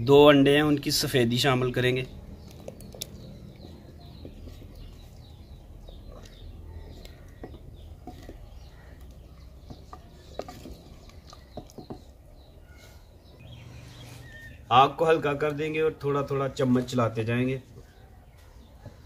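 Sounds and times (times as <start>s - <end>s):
small birds chirping: 0.0s - 19.0s
wooden spoon knocking clay pot: 2.4s - 12.3s.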